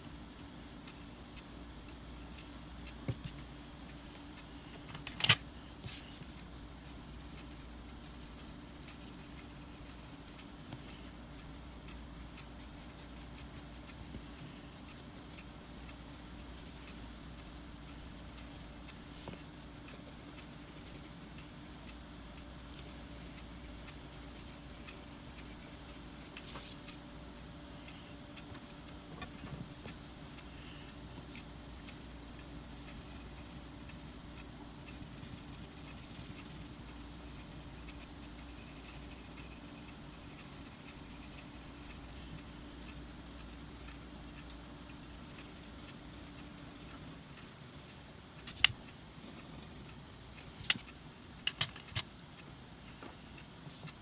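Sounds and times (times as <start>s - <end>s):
low steady hum: 0.0s - 54.0s
pencil scratching on paper: 5.8s - 22.0s, 22.7s - 26.9s, 29.7s - 50.9s.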